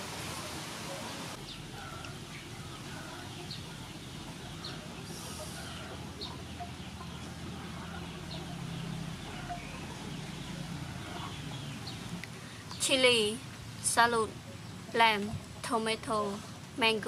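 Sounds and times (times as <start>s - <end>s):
birds chirping: 0.9s - 17.0s
steady low hum: 1.3s - 17.0s.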